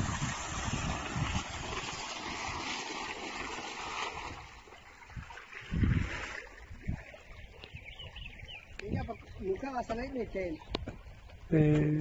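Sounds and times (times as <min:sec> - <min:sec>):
wind rumbling on microphone: 0:00.0 - 0:03.1, 0:03.9 - 0:12.0
water gushing from a pipe: 0:00.0 - 0:07.1.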